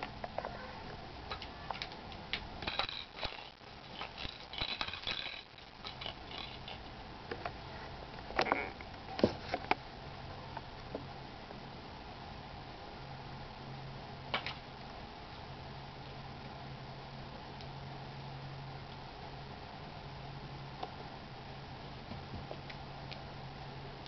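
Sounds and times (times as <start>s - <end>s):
faint low hum: 0.0s - 24.0s.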